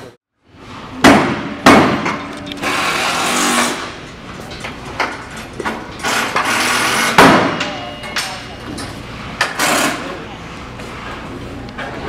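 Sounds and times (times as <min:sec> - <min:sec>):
sharp knocks: 0:01.0 - 0:03.0, 0:05.0 - 0:07.8
power tool whirring: 0:02.3 - 0:04.0.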